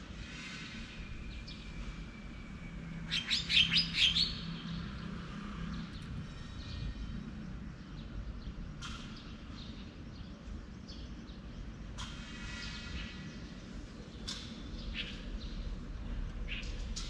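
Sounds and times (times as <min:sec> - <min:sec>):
birds chirping: 0:03.0 - 0:07.0.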